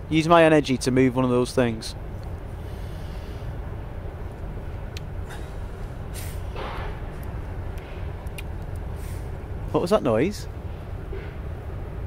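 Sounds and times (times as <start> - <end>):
distant factory machinery drone: 0.0 - 12.0
short rustling hiss: 5.3 - 6.9.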